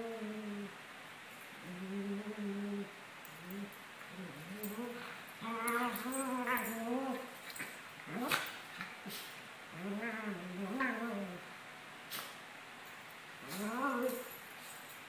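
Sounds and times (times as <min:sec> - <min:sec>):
dogs growling and grumbling: 0:00.0 - 0:00.8, 0:01.6 - 0:11.5, 0:13.4 - 0:14.4.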